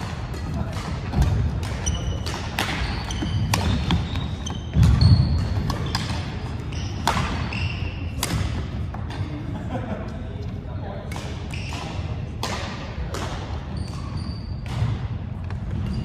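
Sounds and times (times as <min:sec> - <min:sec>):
racket hitting shuttlecock: 0:00.0 - 0:09.2, 0:11.1 - 0:16.0
sneakers squeaking on court: 0:00.6 - 0:08.8, 0:13.6 - 0:16.0.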